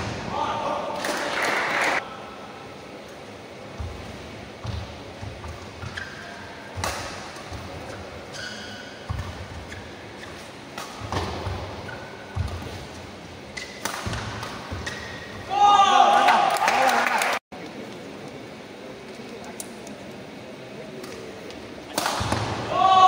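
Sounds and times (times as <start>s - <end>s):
shoes squeaking on floor: 5.3s - 6.6s, 7.6s - 15.4s
rackets striking shuttlecock: 6.8s - 8.0s, 9.0s - 12.9s, 13.5s - 15.4s, 21.9s - 22.6s.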